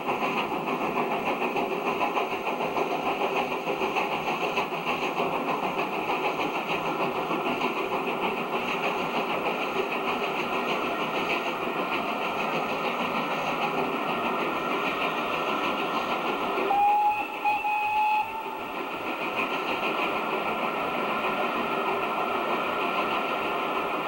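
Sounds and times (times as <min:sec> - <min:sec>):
train rumbling past: 0:00.0 - 0:24.0
steam train whistle: 0:16.6 - 0:18.8.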